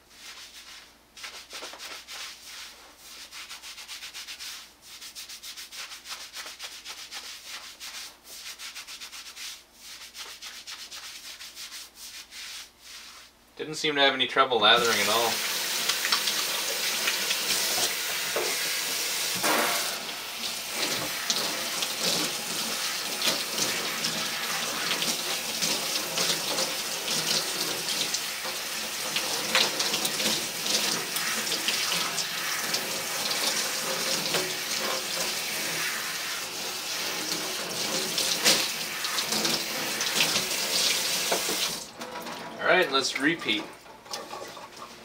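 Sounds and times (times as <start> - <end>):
water spraying into metal sink: 14.8 - 42.0.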